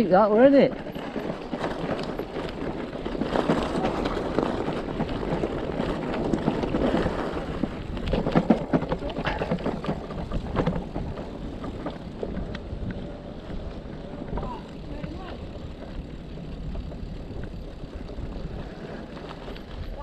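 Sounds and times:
bike tyres rolling over gravel: 0.0s - 20.0s
small knocks and rattles: 0.7s - 13.0s.

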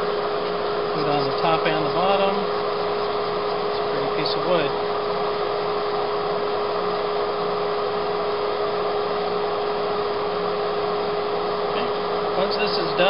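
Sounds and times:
hand sanding: 0.0s - 5.3s
dust suction hum: 0.0s - 5.7s
wood lathe whirring: 0.0s - 13.0s.

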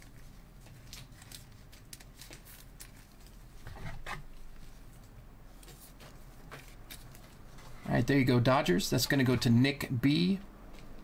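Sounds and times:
gloved hands handling cards: 0.0s - 7.8s.

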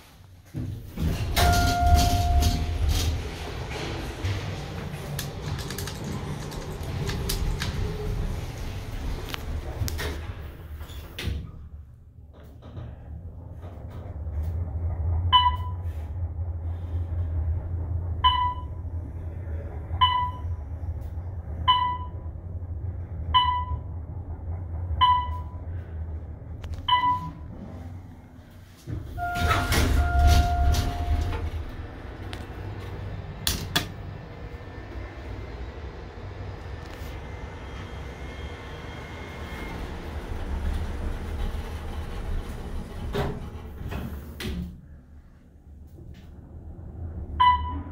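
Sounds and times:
elevator doors sliding open: 0.0s - 47.9s
elevator rumbling: 0.3s - 47.9s
elevator chime: 1.3s - 3.1s, 15.3s - 15.9s, 18.2s - 18.9s, 20.0s - 20.6s, 21.7s - 22.3s, 23.3s - 24.0s, 25.0s - 25.7s, 26.9s - 27.5s, 29.2s - 31.6s, 47.4s - 47.9s
short elevator beeps: 1.4s - 2.8s, 15.3s - 15.8s, 18.2s - 18.8s, 20.0s - 20.5s, 21.7s - 22.2s, 23.4s - 23.9s, 25.0s - 25.6s, 26.9s - 27.4s, 29.2s - 31.4s, 47.4s - 47.9s.

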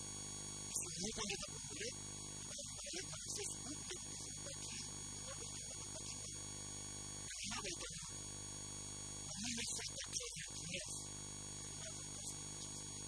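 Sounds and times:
steady electrical hum: 0.0s - 13.0s
man speaking: 0.7s - 6.4s, 7.3s - 8.1s, 9.3s - 11.1s, 11.8s - 12.9s.

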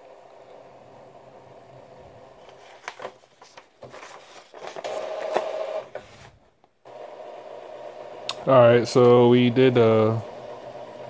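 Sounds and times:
paper sheet crackling: 2.4s - 6.4s
printer mechanism whirring: 3.9s - 6.3s, 6.9s - 11.0s.

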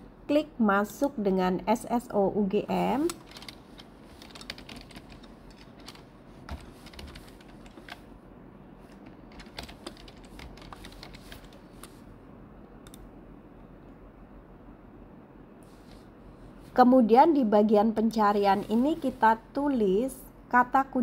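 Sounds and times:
typing on computer keyboard: 3.0s - 8.0s, 8.9s - 12.0s.

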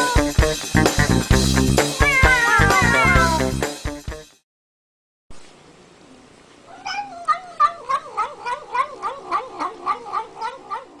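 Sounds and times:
cat yowling: 0.0s - 0.3s, 1.9s - 3.5s, 6.7s - 11.0s.

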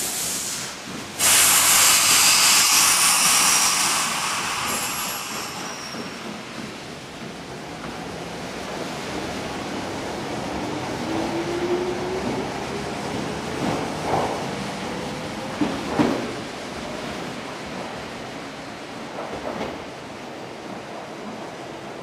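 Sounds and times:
compressed air hiss from train: 0.0s - 6.6s.

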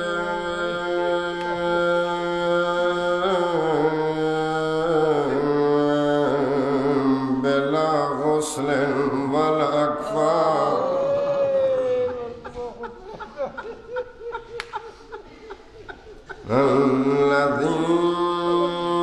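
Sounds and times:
man chanting melodically: 0.0s - 12.1s, 16.4s - 19.0s.

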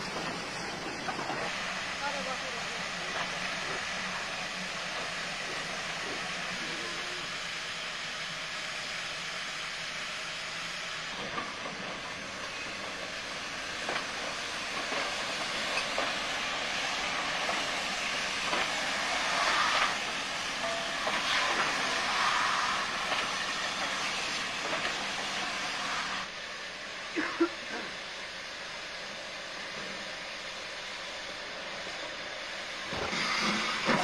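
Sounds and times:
steam hissing: 0.0s - 34.0s
locomotive clanks: 11.2s - 25.6s, 32.9s - 34.0s.

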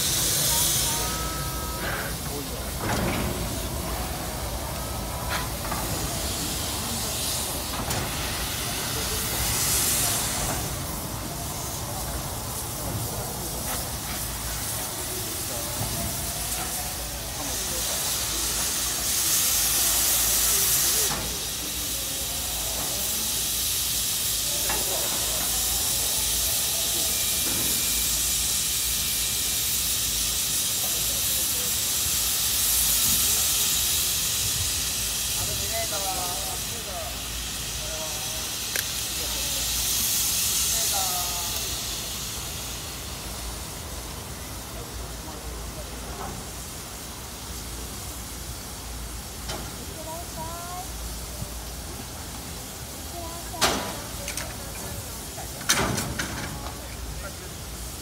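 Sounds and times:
steam locomotive hissing: 0.0s - 58.0s.

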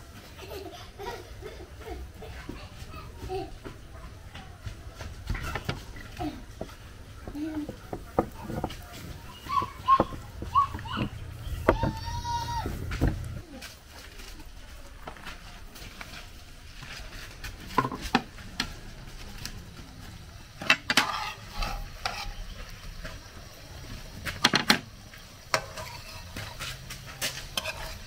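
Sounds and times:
snacks sizzling in oil: 5.3s - 28.0s
spatula and fork clinking on pan: 25.5s - 28.0s.

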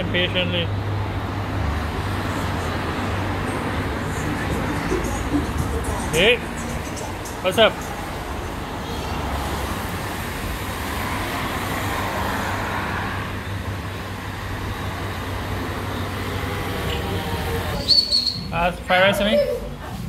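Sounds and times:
low traffic rumble: 0.0s - 20.0s
car driving past: 0.8s - 18.6s.

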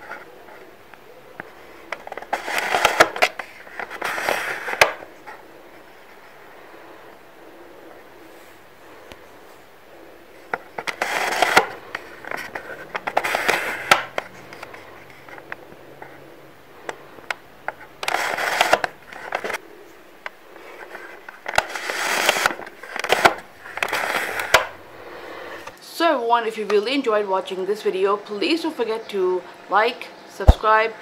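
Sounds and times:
plastic viewer scraping and clicking: 1.4s - 5.0s, 10.5s - 16.2s, 16.8s - 19.6s, 20.2s - 24.7s.

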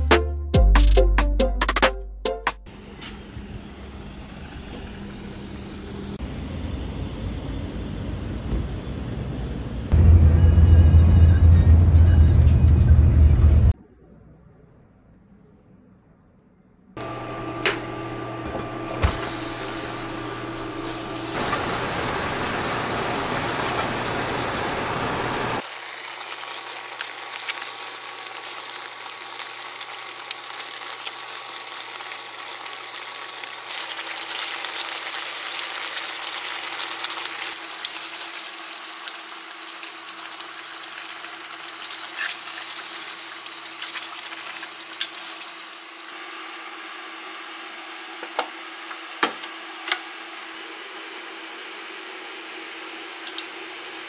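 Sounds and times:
meat sizzling in a pan: 19.4s - 45.9s.

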